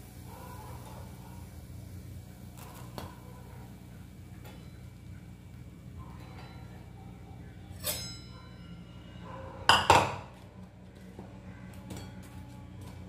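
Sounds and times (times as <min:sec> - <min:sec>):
utensil clinking against cookware: 0:06.1 - 0:06.8.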